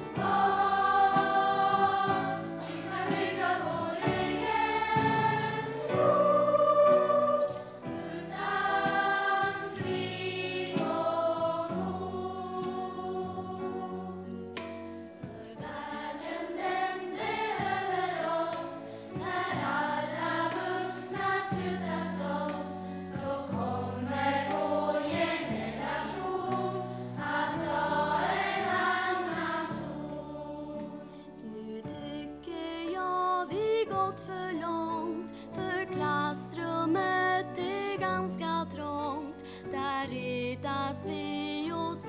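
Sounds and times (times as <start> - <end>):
children's choir singing: 0.0 - 32.6.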